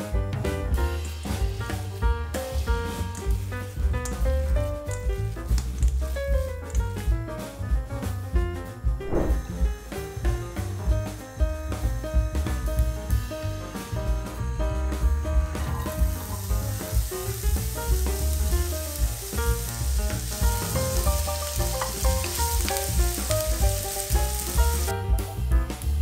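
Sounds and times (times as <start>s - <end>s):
background music with steady beat: 0.0s - 26.0s
onion sizzling in a frying pan: 0.3s - 6.4s, 12.4s - 26.0s.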